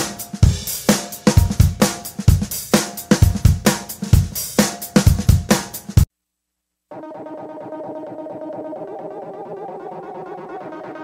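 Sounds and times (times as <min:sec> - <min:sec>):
drum-heavy beat: 0:00.0 - 0:06.1.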